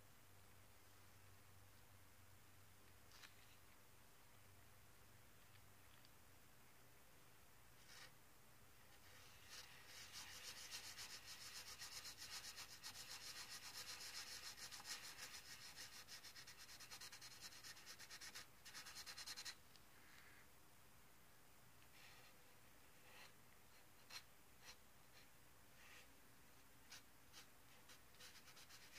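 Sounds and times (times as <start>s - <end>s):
pencil scribbling on paper: 9.1s - 19.6s, 26.9s - 28.9s.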